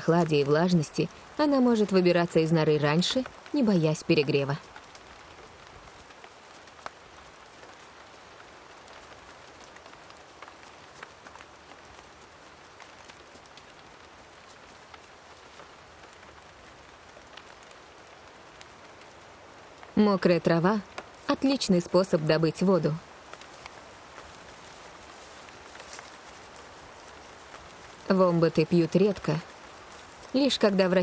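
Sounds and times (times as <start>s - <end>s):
heavy rain falling: 0.0s - 31.0s.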